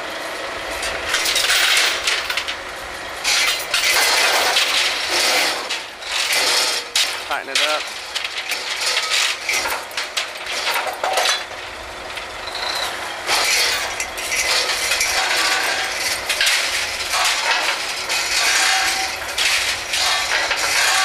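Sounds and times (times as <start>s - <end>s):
rig machinery noise: 0.0s - 21.0s
metal pipe gear clanking: 12.4s - 21.0s.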